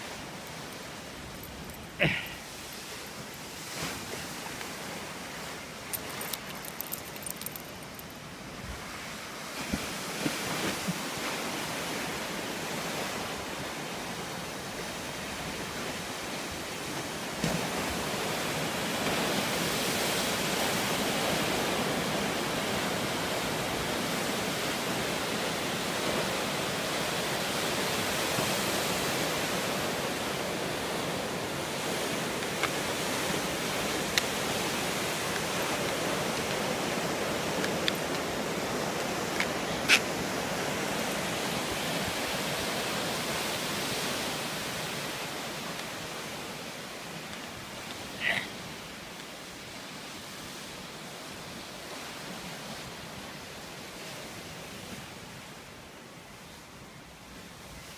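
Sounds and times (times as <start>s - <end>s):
waves breaking on shore: 0.0s - 57.9s
small clicks: 6.0s - 8.1s.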